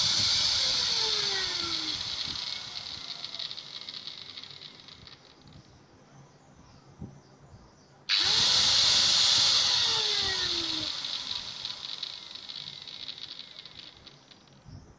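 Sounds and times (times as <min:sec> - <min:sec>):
angle grinder motor whirring: 0:00.0 - 0:05.6, 0:08.1 - 0:14.7.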